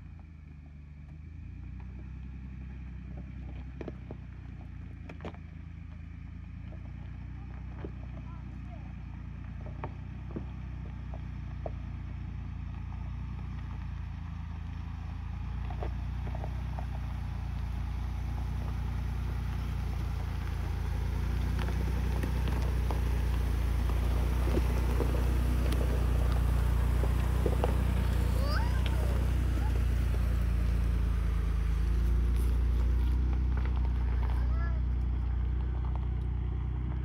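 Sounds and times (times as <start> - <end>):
engine hum: 0.0 - 37.0
stones crunching under tyres: 0.1 - 37.0.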